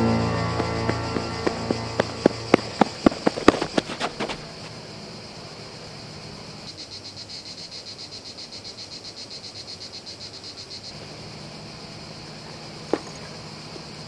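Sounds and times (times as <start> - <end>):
high hiss of outdoor wildlife: 0.0 - 14.0.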